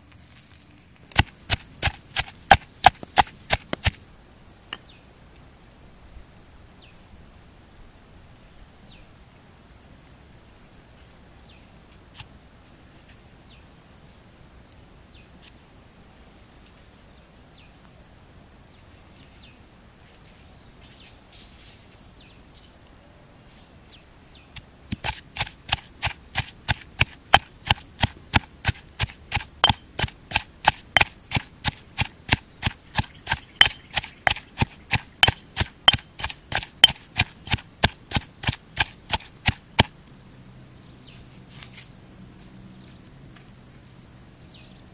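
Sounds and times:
insect drone: 0:00.0 - 0:44.9
mortar and pestle pounding: 0:01.1 - 0:04.0, 0:24.9 - 0:39.9.

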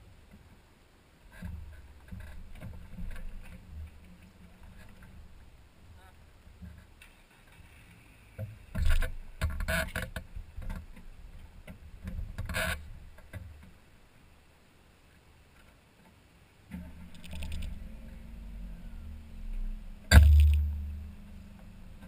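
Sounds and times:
car engine and road rumble: 0:16.6 - 0:22.0.

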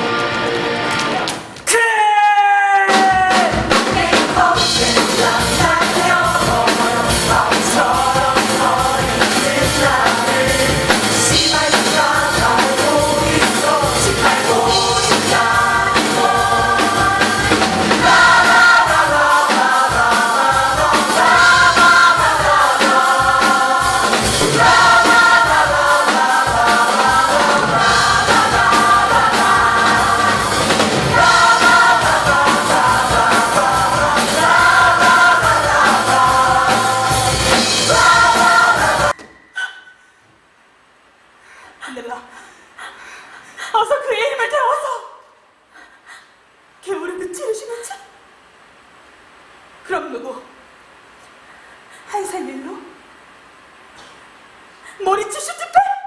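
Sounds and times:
piano: 0:02.5 - 0:39.6
drums playing a steady beat: 0:02.8 - 0:39.2
ensemble singing in chorus: 0:03.3 - 0:39.4.

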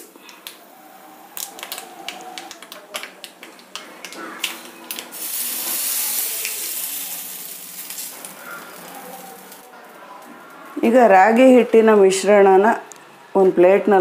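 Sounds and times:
hot oil sizzling: 0:00.0 - 0:10.8
seeds crackling in hot oil: 0:00.0 - 0:10.9.

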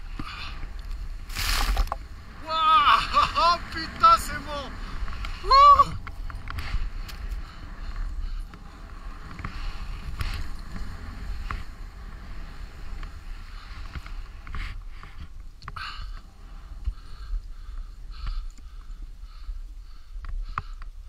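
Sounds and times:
skis swishing through snow: 0:00.0 - 0:15.4
wind rumble on microphone: 0:00.0 - 0:21.0.

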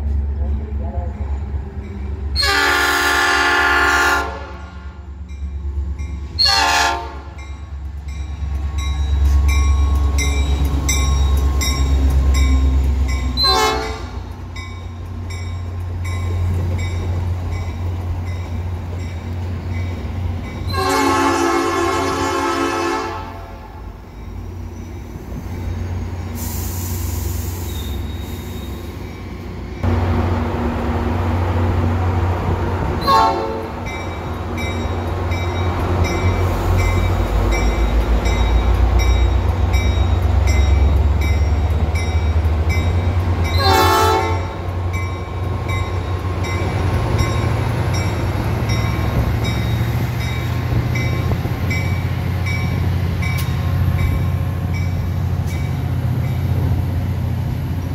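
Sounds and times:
diesel locomotive engine rumble: 0:00.0 - 0:57.9
train horn blasts: 0:02.4 - 0:05.0, 0:06.4 - 0:07.4, 0:13.4 - 0:14.2, 0:20.7 - 0:23.8, 0:33.0 - 0:33.8, 0:43.5 - 0:44.6.

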